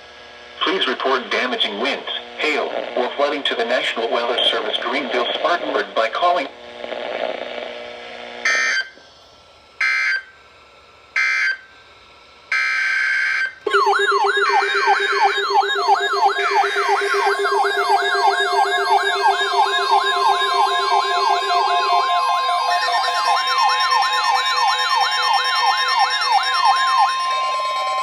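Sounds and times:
sweeping siren-like alert tone: 12.5 - 28.0
steady low tone: 13.7 - 24.6
steady higher alert tone: 13.7 - 28.0.

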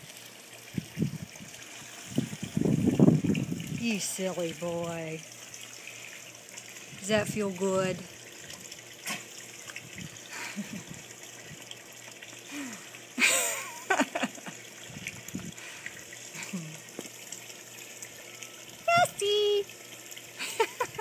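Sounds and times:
water lapping and trickling: 0.0 - 21.0.

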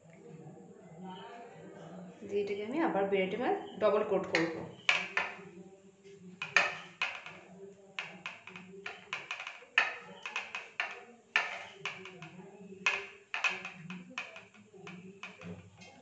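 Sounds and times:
hand patting cutlet on steel plate: 4.4 - 5.5, 6.4 - 15.8.

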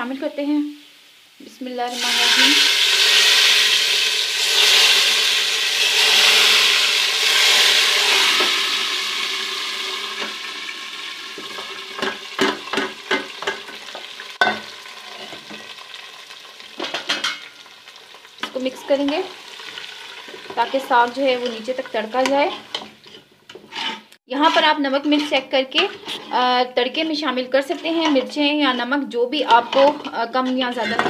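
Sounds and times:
hot oil sizzling: 0.0 - 30.8.

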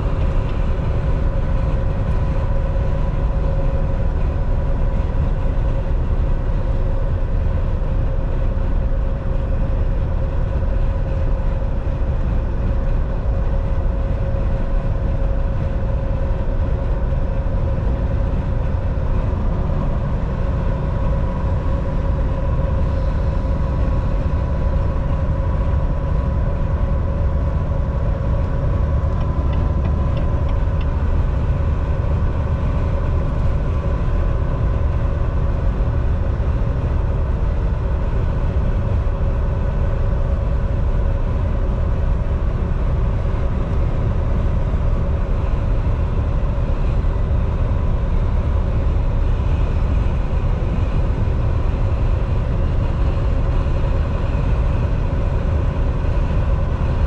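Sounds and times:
steady hum: 0.0 - 57.0
truck engine and tyres droning: 0.0 - 57.0.

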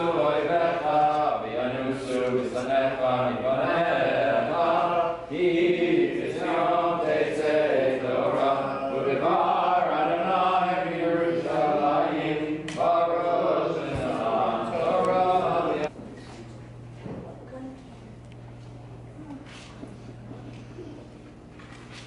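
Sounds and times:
voices chanting a prayer: 0.0 - 15.9.

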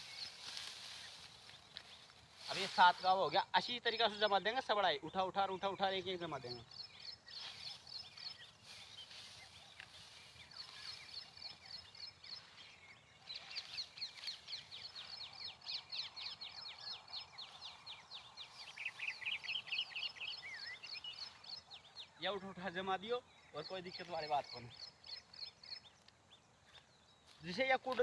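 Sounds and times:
birds chirping: 0.0 - 28.0
low dense bird trill: 0.0 - 28.0.

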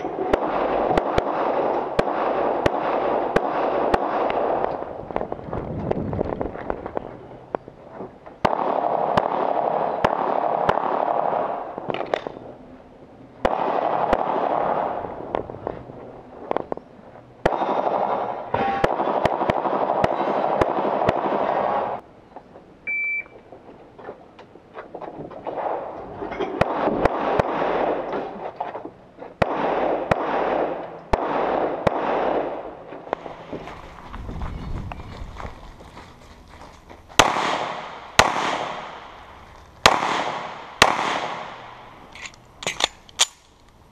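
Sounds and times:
pistol shots: 0.0 - 4.9, 8.4 - 12.3, 13.4 - 15.0, 17.4 - 22.0, 25.5 - 28.4, 29.4 - 33.4, 37.2 - 43.5
high beep: 22.9 - 23.4.

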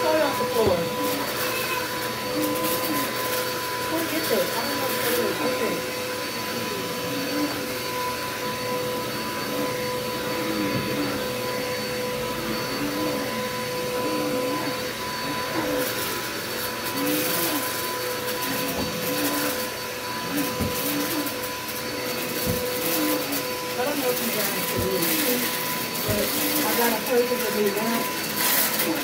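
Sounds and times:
vacuum cleaner running on carpet: 0.0 - 29.0.

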